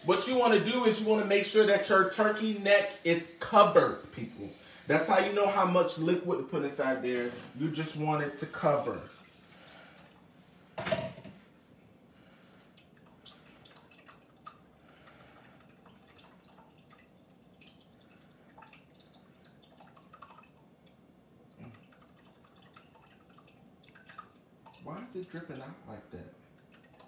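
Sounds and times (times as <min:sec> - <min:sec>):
liquid dripping into saucepan: 0:12.6 - 0:27.0.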